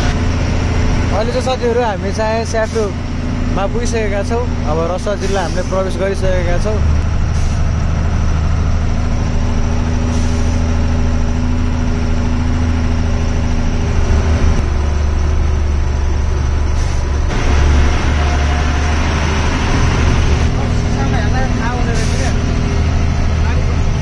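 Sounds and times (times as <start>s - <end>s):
road noise: 0.0s - 24.0s
truck engine humming: 0.0s - 24.0s.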